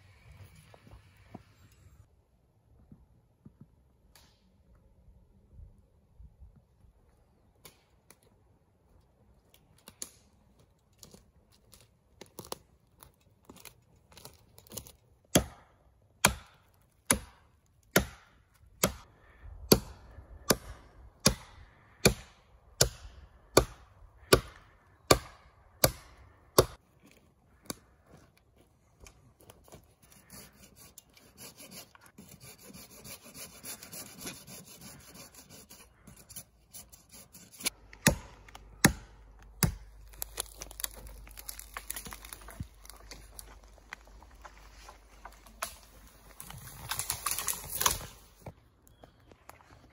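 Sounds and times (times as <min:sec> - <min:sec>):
wood chopping strikes: 0:14.6 - 0:19.0, 0:19.7 - 0:26.8, 0:37.6 - 0:43.5
rasp scraping on wood: 0:29.8 - 0:37.7.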